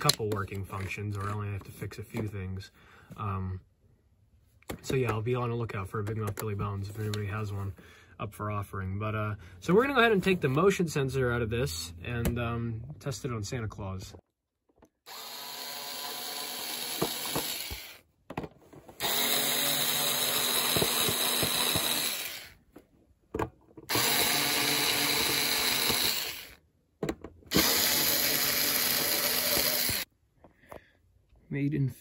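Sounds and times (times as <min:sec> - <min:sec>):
power drill driving screws: 0:15.0 - 0:18.0, 0:19.0 - 0:22.6, 0:23.9 - 0:26.6, 0:27.5 - 0:30.1.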